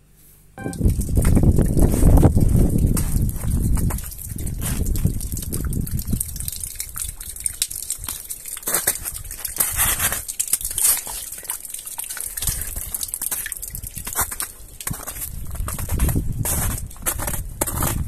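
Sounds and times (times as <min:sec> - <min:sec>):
water trickling: 0:00.6 - 0:17.2
footsteps in slush: 0:01.2 - 0:05.7, 0:07.7 - 0:18.0
thawing slush crackling: 0:06.6 - 0:16.0.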